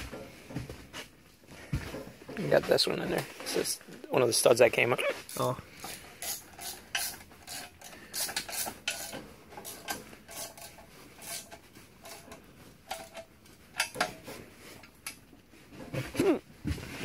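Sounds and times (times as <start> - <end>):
ratchet wrench clicking: 5.3 - 10.6.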